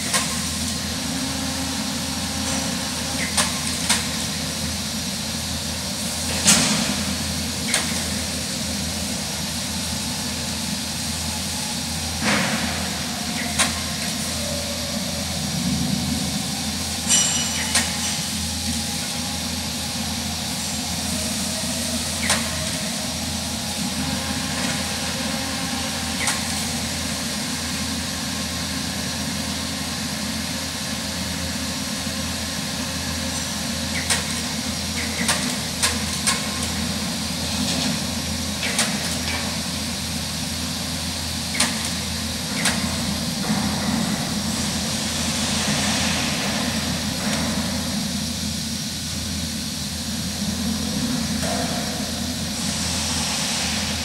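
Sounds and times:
workshop machinery humming: 0.0s - 54.0s.

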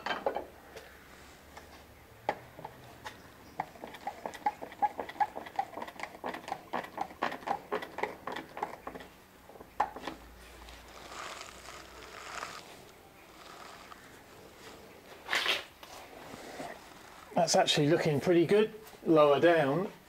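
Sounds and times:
cloth rustling on microphone: 10.5s - 17.5s.

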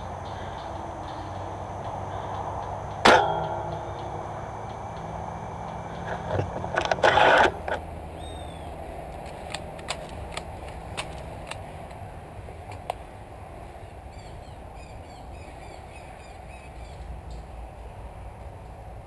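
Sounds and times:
rustling through undergrowth: 6.0s - 12.9s
faint bird chirps: 8.2s - 8.8s
twigs snapping: 9.0s - 13.0s.

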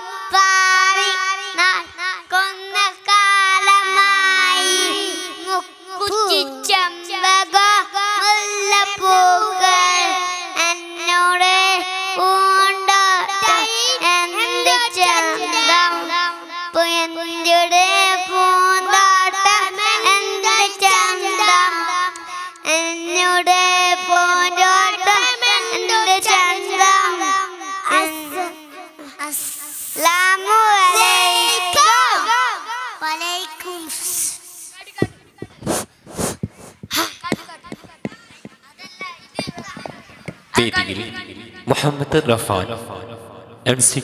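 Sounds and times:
boys singing in unison: 0.0s - 33.0s.

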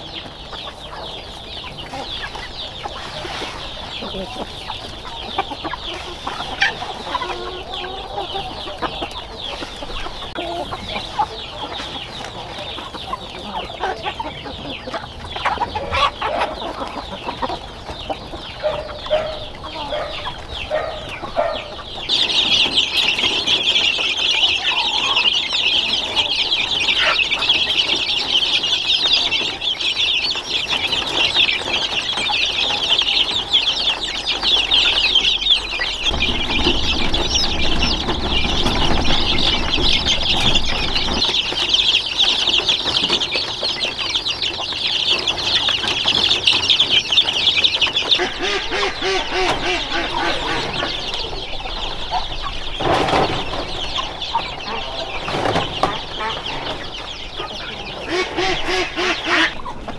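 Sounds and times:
chickens clucking: 0.0s - 59.9s
low rumble: 35.5s - 41.5s.

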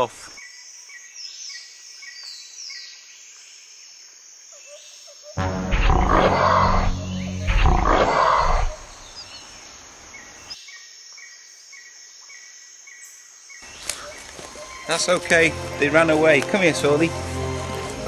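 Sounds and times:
dinosaur roars: 5.4s - 9.0s.

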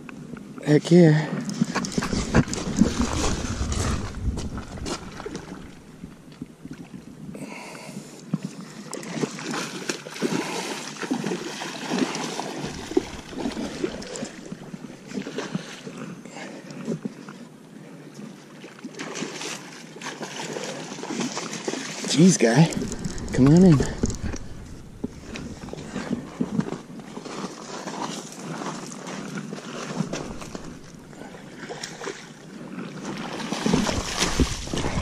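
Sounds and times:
fish splashing in water: 9.0s - 15.8s, 23.9s - 35.0s.

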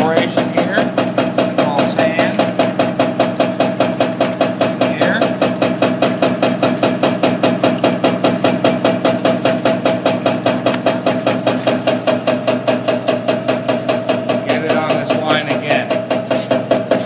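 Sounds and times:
motor hum: 0.0s - 17.0s
shaking deck knocking: 0.0s - 17.0s.

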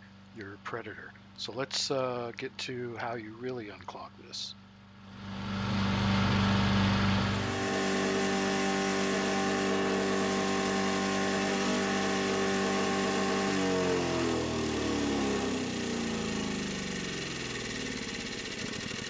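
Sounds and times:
wood chipper engine running: 5.1s - 19.0s.

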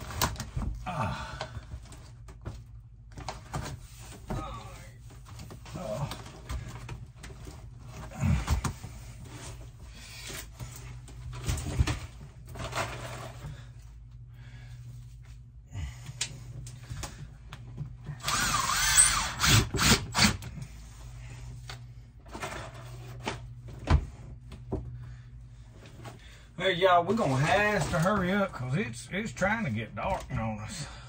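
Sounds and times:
cordless drill motor whine: 18.1s - 20.6s.

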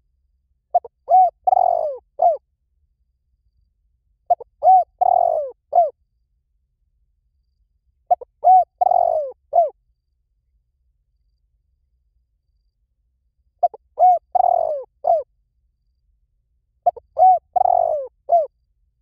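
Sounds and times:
dove cooing: 0.7s - 2.4s, 4.3s - 5.9s, 8.1s - 9.8s, 13.6s - 15.3s, 16.8s - 18.5s.

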